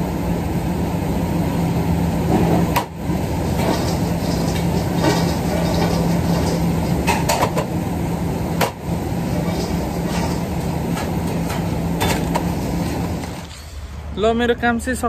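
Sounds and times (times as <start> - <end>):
kitchen machinery hum: 0.0 - 15.0
utensils clattering: 3.5 - 7.7, 9.3 - 13.8.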